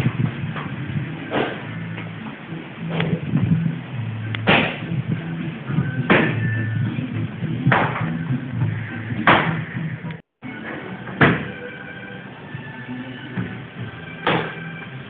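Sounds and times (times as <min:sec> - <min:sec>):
music with bass and heavy drums: 0:00.0 - 0:10.2.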